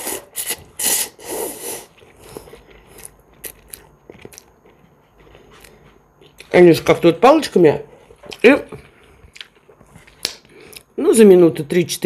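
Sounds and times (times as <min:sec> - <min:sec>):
person slurping noodles: 0:00.0 - 0:03.1
wet chewing: 0:01.9 - 0:06.5, 0:08.1 - 0:10.9.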